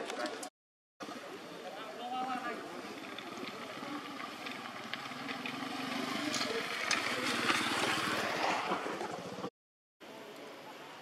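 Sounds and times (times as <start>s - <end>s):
small engine running: 2.8s - 8.4s.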